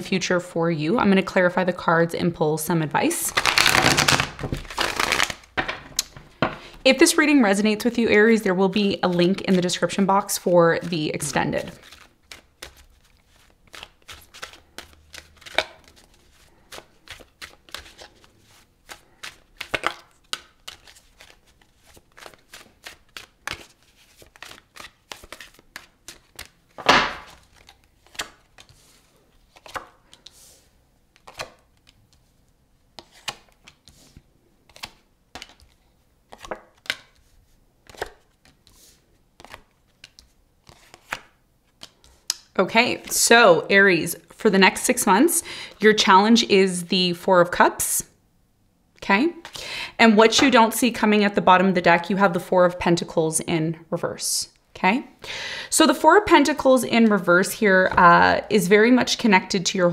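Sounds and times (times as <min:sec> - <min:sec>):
cards being shuffled: 0:03.3 - 0:06.8, 0:08.6 - 0:32.3, 0:33.0 - 0:43.2
cards laid on table: 0:03.4 - 0:06.8, 0:26.4 - 0:28.8
deck knocked on table: 0:26.8 - 0:27.3.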